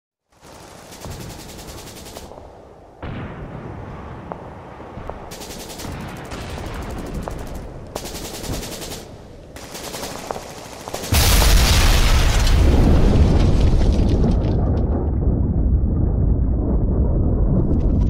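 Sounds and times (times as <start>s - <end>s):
machine-gun fire: 0.4s - 2.4s, 5.3s - 12.1s
low rumble: 12.0s - 18.0s.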